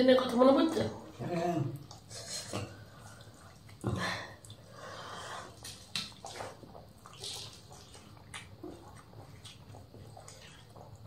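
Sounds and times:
wet squishes of hand-mixed rice: 2.8s - 11.0s.

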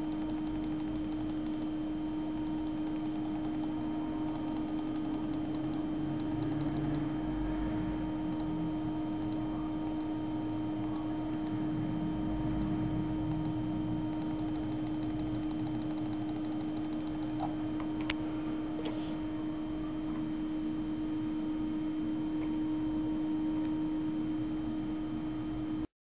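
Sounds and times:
low steady hum: 0.0s - 25.9s.

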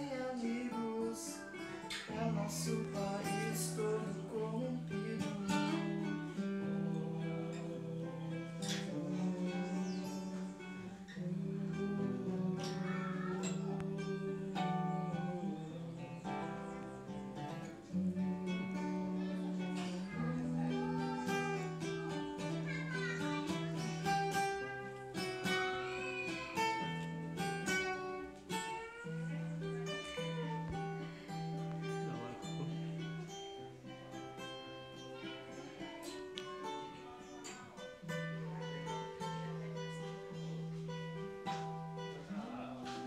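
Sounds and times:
two acoustic guitars playing: 0.0s - 43.0s.

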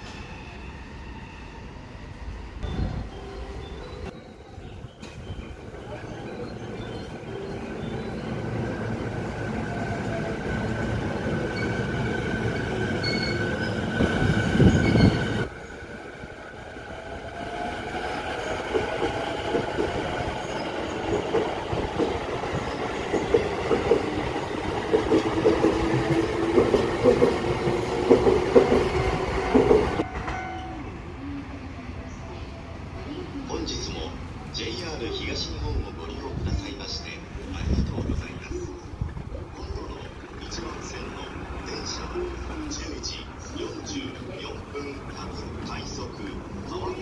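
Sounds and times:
train wheels clickety-clack: 21.1s - 30.4s.

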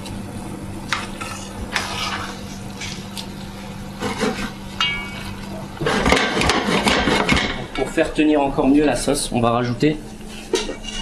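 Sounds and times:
metal utensil scraping pots: 10.6s - 11.0s.

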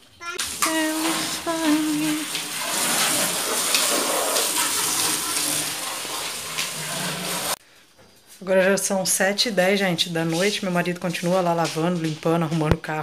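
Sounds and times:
hose spraying water: 0.0s - 7.6s, 10.0s - 12.3s.

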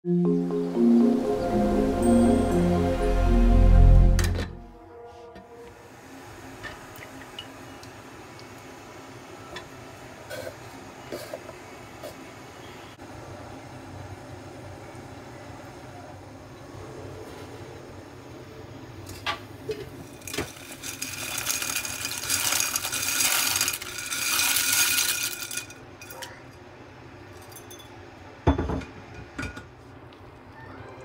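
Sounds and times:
dry pasta rattling into pot: 20.0s - 26.2s.

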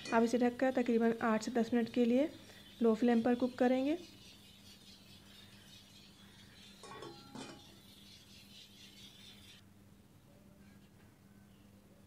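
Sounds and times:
faint steady hum: 0.0s - 12.0s
metal lid clinking on pot: 6.8s - 7.8s.

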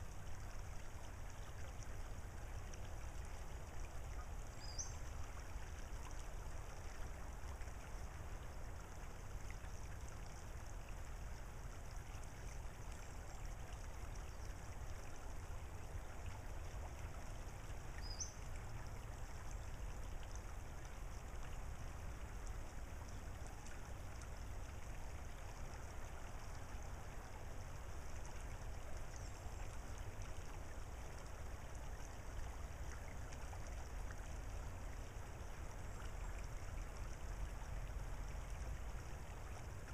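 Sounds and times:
creek trickling over gravel: 0.0s - 39.9s
low steady rumble: 0.0s - 39.9s.

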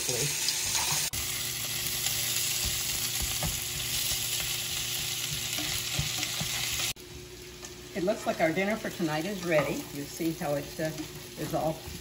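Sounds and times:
food sizzling in a frying pan: 0.0s - 12.0s
spatula scraping and tapping: 5.2s - 6.8s.

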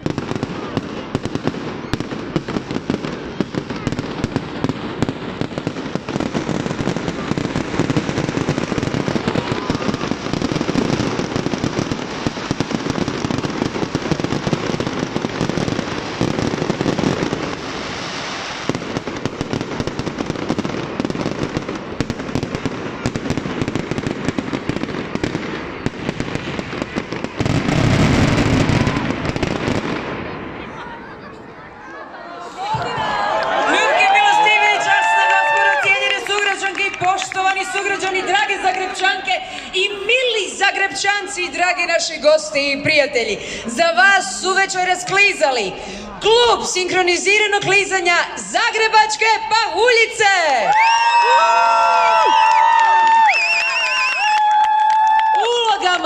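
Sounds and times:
fireworks banging: 0.0s - 31.4s.

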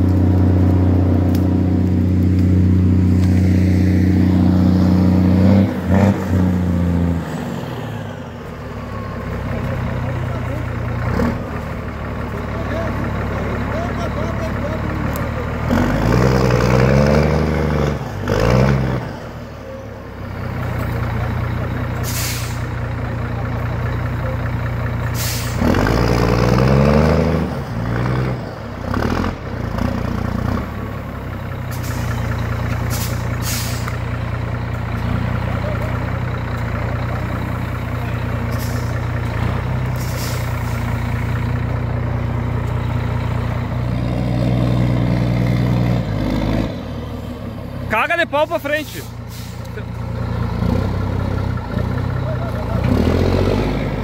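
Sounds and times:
truck diesel engine revving: 0.0s - 54.0s
air brake hisses: 22.0s - 22.7s, 25.1s - 25.6s, 31.7s - 32.2s, 32.9s - 34.0s, 40.0s - 40.9s, 48.9s - 49.8s.

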